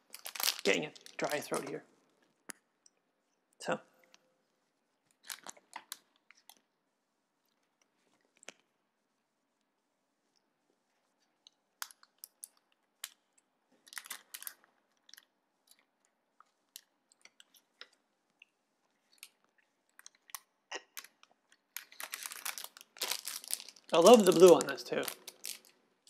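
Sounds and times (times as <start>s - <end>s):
plastic bag crinkling: 0.0s - 1.8s, 5.2s - 6.6s, 13.8s - 15.3s, 21.0s - 25.9s.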